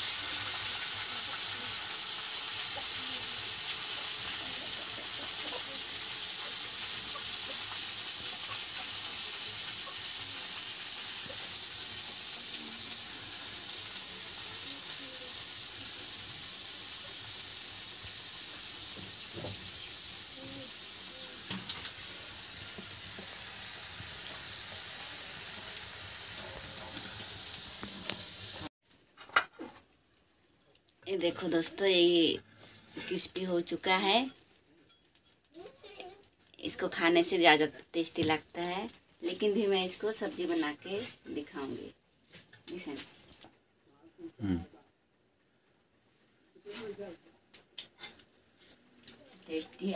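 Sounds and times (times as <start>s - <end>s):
fish sizzling in hot oil: 0.0s - 28.7s, 31.1s - 36.0s, 36.6s - 42.0s.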